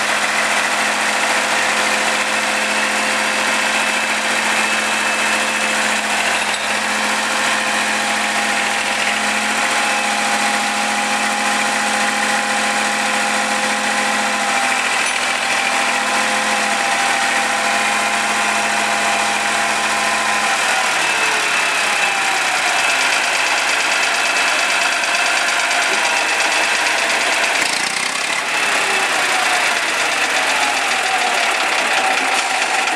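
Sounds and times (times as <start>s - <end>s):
road roller engine idling: 0.0s - 32.9s.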